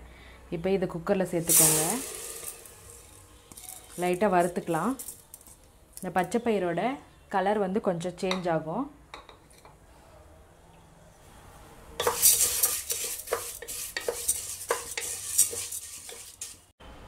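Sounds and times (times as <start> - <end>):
beans sizzling and rattling: 1.2 - 5.7, 12.0 - 16.7
wooden spatula scraping pot: 12.0 - 16.7.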